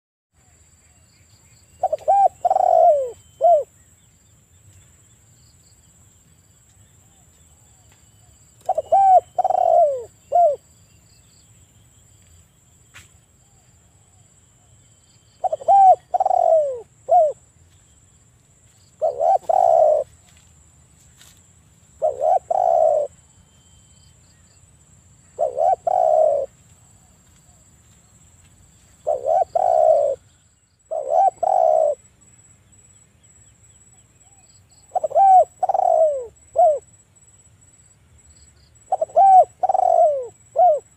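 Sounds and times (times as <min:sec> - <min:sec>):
dove cooing: 0:01.8 - 0:03.7, 0:08.6 - 0:10.6, 0:15.4 - 0:17.4, 0:19.0 - 0:20.2, 0:22.0 - 0:23.2, 0:25.4 - 0:27.6, 0:29.0 - 0:30.3, 0:30.9 - 0:32.0, 0:34.3 - 0:36.9, 0:38.9 - 0:40.9.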